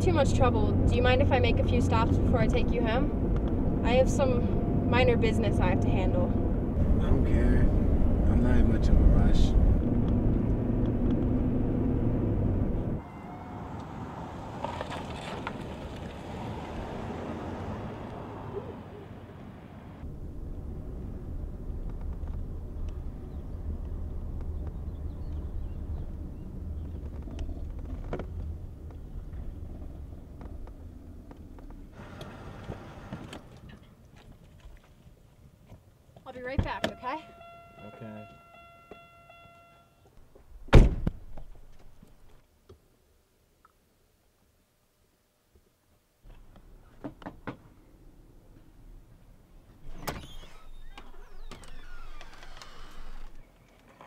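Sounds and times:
car engine and road rumble: 0.0 - 44.0, 46.1 - 54.0
door creaking on hinges: 49.8 - 53.9.

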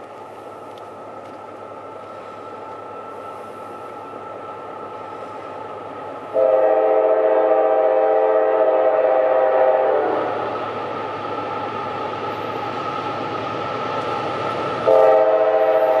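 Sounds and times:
locomotive engine running: 0.0 - 8.3
locomotive air horn blast: 6.3 - 10.4, 14.8 - 16.0.

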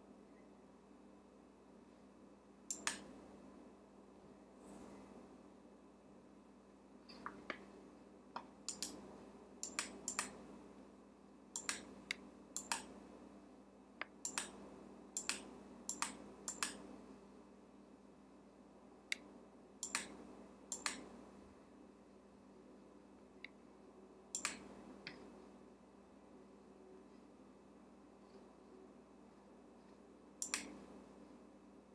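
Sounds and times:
faint steady hum: 0.0 - 31.9
computer input clicks: 2.7 - 3.1, 8.7 - 9.0, 9.6 - 10.4, 11.6 - 11.9, 12.6 - 12.9, 14.2 - 14.6, 19.8 - 21.0, 24.4 - 24.6, 30.4 - 30.8.

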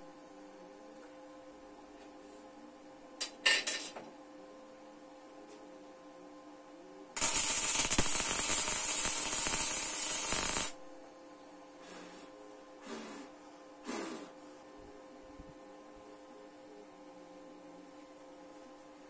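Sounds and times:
arc welding crackling: 7.2 - 11.0.

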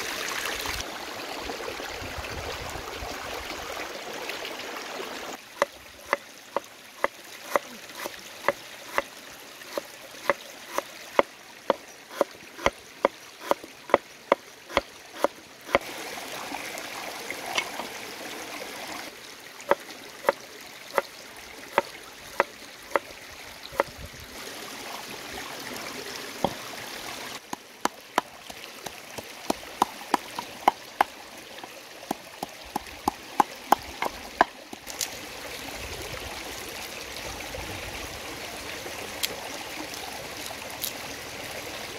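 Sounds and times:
shallow stream rushing: 0.0 - 41.9
cleaver chopping on wooden board: 7.0 - 9.0, 9.7 - 11.3, 12.1 - 12.8, 13.4 - 14.0, 14.7 - 15.8, 21.8 - 23.0.

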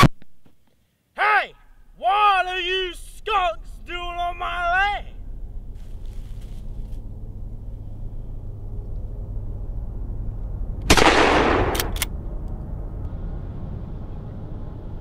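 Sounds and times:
steady low rumble: 1.6 - 15.0
sharp clicks: 10.8 - 12.6
shotgun blast: 10.9 - 12.0.

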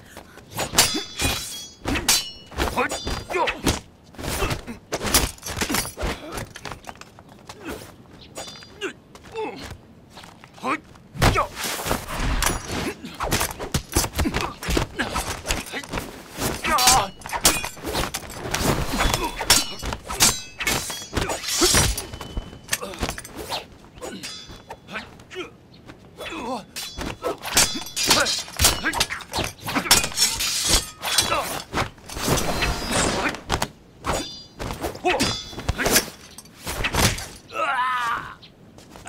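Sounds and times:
swishing swings: 11.5 - 25.2.

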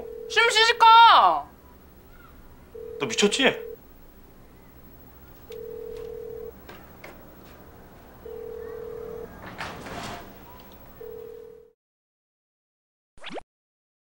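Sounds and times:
telephone ringback beeps: 0.0 - 0.8, 2.7 - 3.8, 5.5 - 6.6, 8.2 - 9.5, 10.9 - 11.8.

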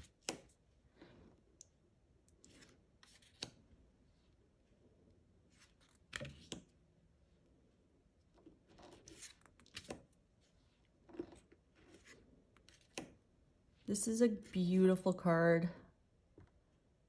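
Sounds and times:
cards sliding: 2.4 - 3.6, 8.7 - 10.2, 11.1 - 13.2.

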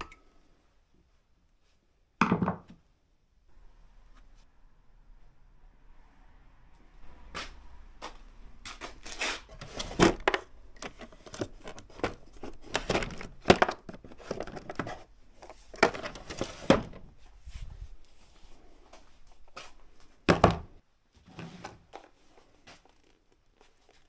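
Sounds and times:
tools and plastic cases clattering: 9.1 - 17.2.

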